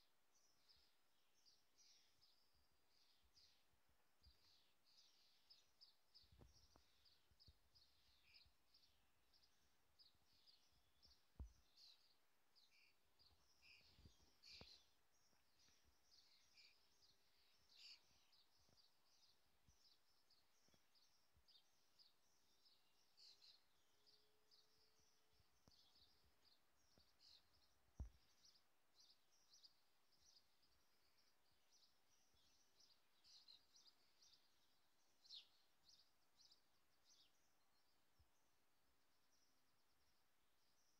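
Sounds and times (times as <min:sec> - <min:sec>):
birds chirping and trilling: 0:04.2 - 0:38.0.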